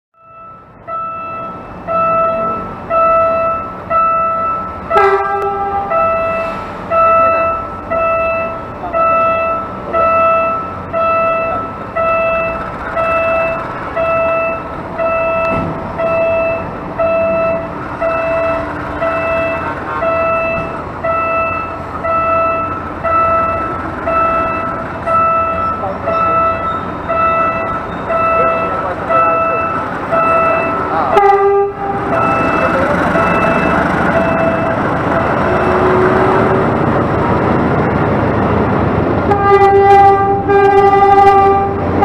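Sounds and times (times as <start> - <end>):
level crossing alarm ringing: 0.2 - 36.6
train horn toot: 4.9 - 6.6, 30.3 - 32.6, 35.2 - 36.7, 39.3 - 42.0.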